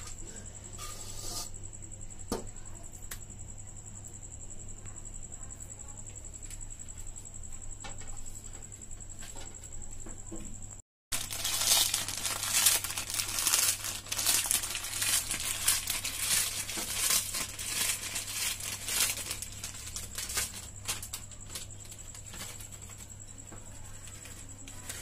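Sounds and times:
plastic chip packet crinkling: 0:11.1 - 0:23.1.

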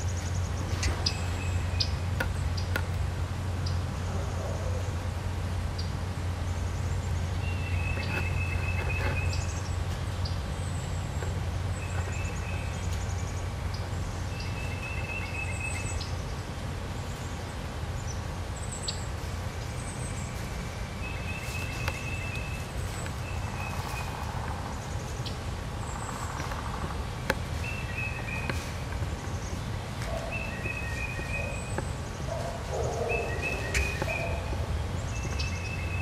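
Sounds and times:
songbirds chirping: 0:00.0 - 0:36.0
steady low rumble: 0:15.8 - 0:36.0.

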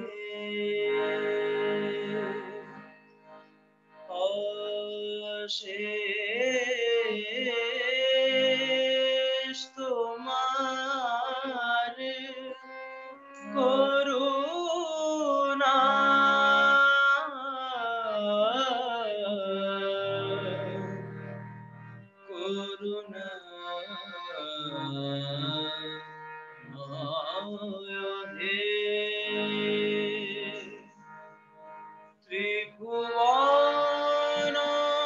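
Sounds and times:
man singing: 0:00.0 - 0:02.8, 0:04.1 - 0:12.8, 0:13.4 - 0:21.1, 0:22.2 - 0:26.0, 0:26.7 - 0:30.9, 0:32.3 - 0:35.0.

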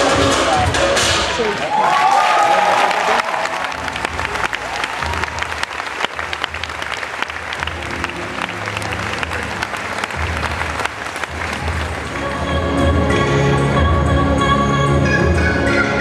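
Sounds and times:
music playing: 0:00.0 - 0:01.7, 0:03.0 - 0:16.0
audience applauding: 0:01.4 - 0:12.4.

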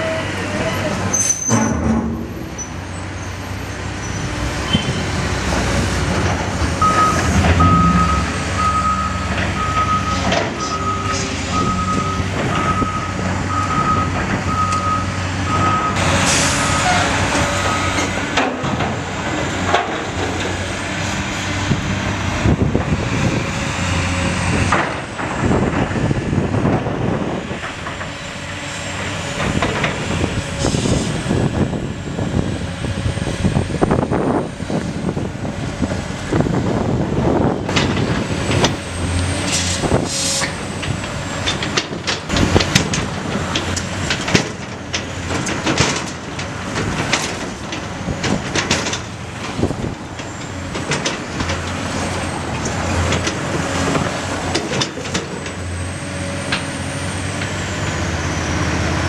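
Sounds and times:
diesel engines running: 0:00.0 - 0:59.0
backup alarm beeping: 0:06.8 - 0:16.0.

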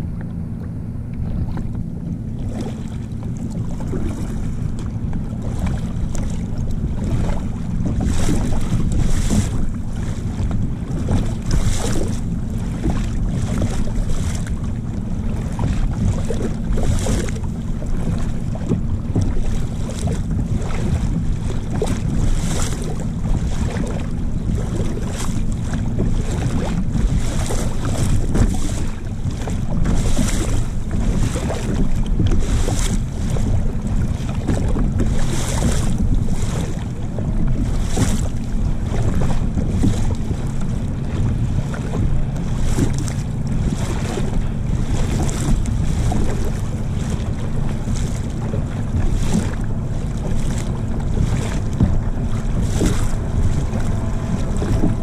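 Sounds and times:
small waves lapping: 0:00.0 - 0:55.0
wind buffeting microphone: 0:00.0 - 0:55.0.

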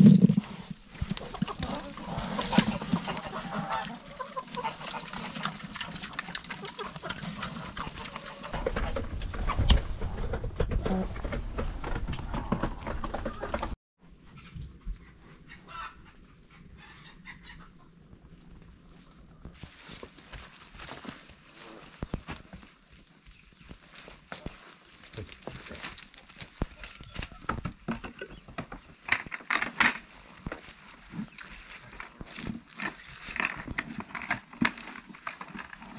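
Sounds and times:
hooves on leaf litter: 0:00.0 - 0:05.5, 0:19.5 - 0:27.9, 0:30.0 - 0:34.1
pigs chewing and smacking: 0:00.0 - 0:08.8.

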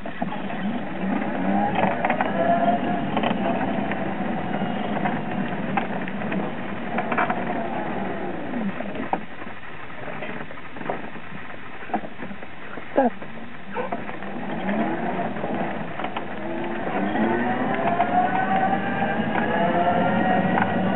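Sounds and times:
wind and tyre noise: 0:00.0 - 0:20.9
electric scooter motor whining: 0:00.2 - 0:09.2, 0:13.7 - 0:20.9.

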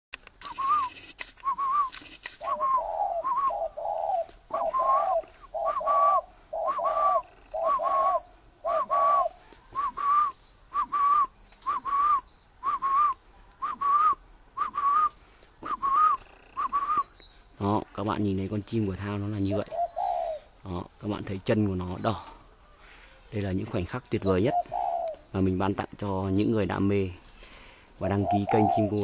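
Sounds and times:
dove calling: 0:00.3 - 0:29.0
lower paired coos: 0:02.5 - 0:13.0, 0:28.1 - 0:29.0.

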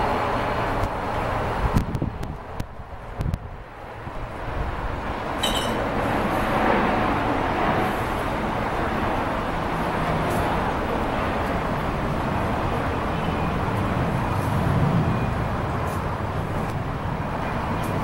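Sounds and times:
wind rushing: 0:00.0 - 0:10.2
wind gusts rumbling on microphone: 0:00.0 - 0:18.0.

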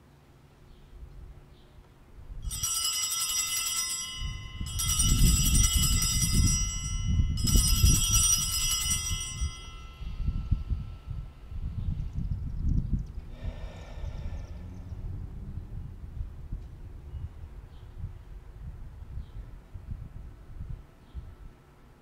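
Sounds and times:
altar bells ringing: 0:02.4 - 0:11.5
low rumble: 0:10.0 - 0:19.1.

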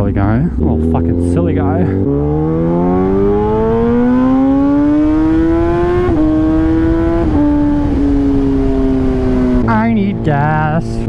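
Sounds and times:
motorcycle engine accelerating: 0:00.0 - 0:11.0
wind rush: 0:04.9 - 0:10.2.

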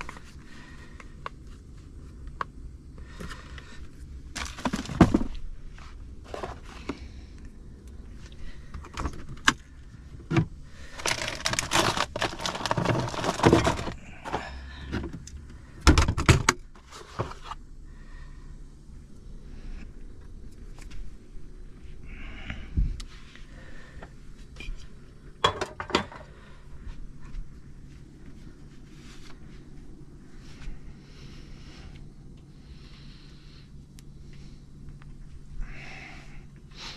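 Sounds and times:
rustling and crinkling: 0:00.0 - 0:17.7, 0:26.1 - 0:32.0.

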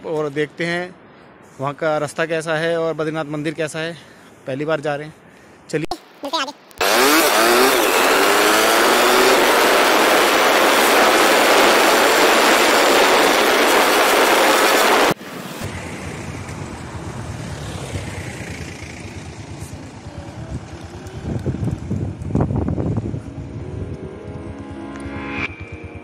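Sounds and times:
motorcycle engine pulling away: 0:06.8 - 0:13.9, 0:15.6 - 0:26.0
wind blasting microphone: 0:07.9 - 0:17.6, 0:19.2 - 0:26.0.

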